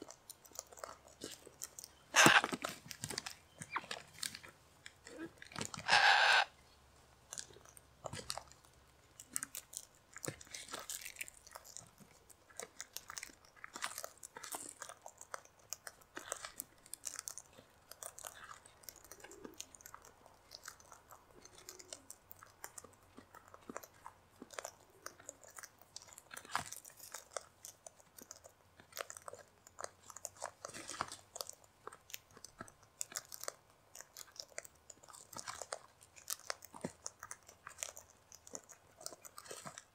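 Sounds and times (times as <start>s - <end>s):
cockatoos cracking seed: 0.8s - 4.5s
cockatoo squawk: 2.1s - 2.6s, 5.7s - 6.6s.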